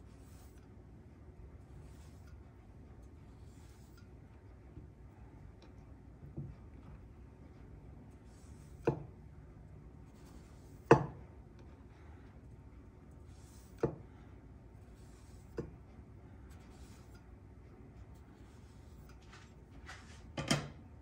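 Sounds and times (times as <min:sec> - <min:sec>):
knife knocking on wooden board: 0:10.8 - 0:11.2.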